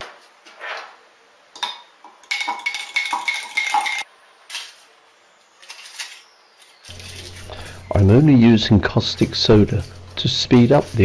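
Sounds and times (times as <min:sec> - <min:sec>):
aluminium foil crinkling: 0:05.5 - 0:11.0.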